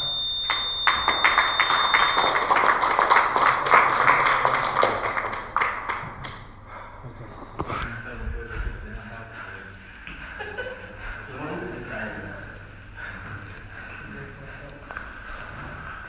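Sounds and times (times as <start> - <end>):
timer beeping high tone: 0.0 - 2.8.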